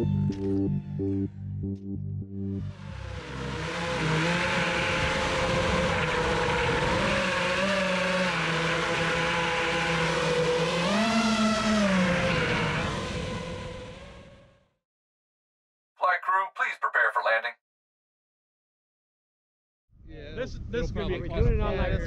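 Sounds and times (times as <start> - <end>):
quadcopter motors whirring: 3.3 - 14.2.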